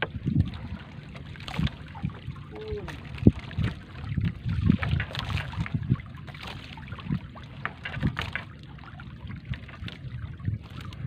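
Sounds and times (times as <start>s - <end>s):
low thumps and splashes: 0.0s - 11.0s.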